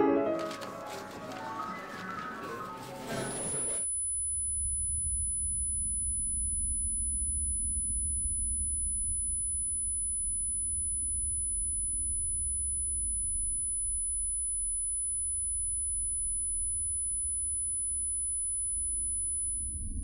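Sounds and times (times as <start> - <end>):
piano music: 0.0 - 3.8.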